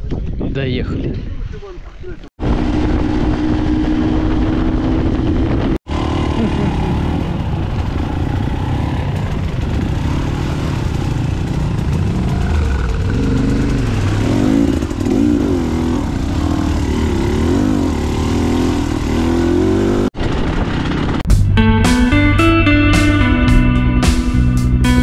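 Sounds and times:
motorcycle engine revving: 2.4s - 21.3s.

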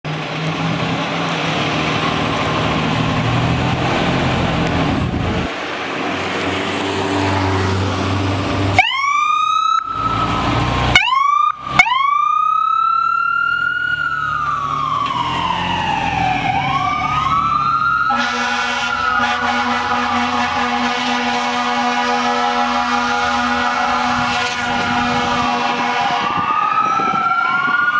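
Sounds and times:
diesel engine rumbling: 0.0s - 27.9s
siren wailing: 8.8s - 21.0s, 22.1s - 27.9s
air horn blast: 18.1s - 26.4s.

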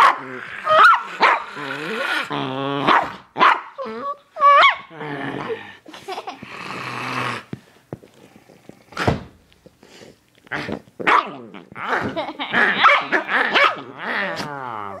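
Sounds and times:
dog barking: 0.0s - 1.5s, 2.9s - 3.8s, 11.1s - 11.3s, 12.8s - 13.8s
dog growling: 0.0s - 5.8s, 6.4s - 7.6s, 10.5s - 15.0s.

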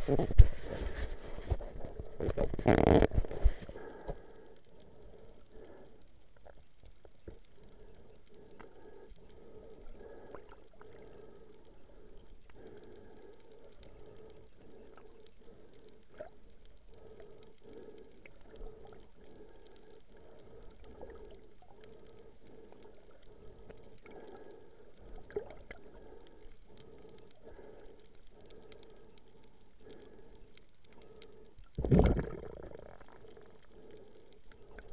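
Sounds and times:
low underwater hum: 0.0s - 34.9s.

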